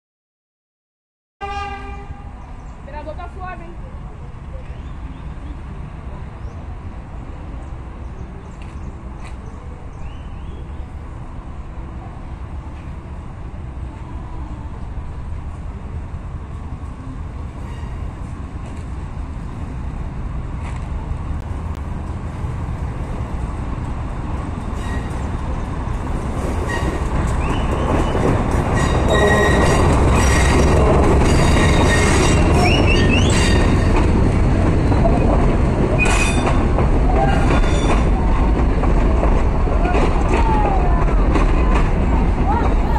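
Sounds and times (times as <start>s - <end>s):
diesel train engine rumble: 1.4s - 42.9s
train wheels squealing on rails: 17.6s - 18.2s, 24.8s - 25.4s, 26.6s - 34.1s, 36.0s - 38.2s.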